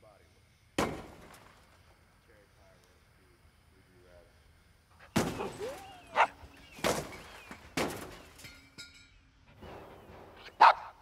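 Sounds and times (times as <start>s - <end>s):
high yelping cries: 5.4s - 6.6s.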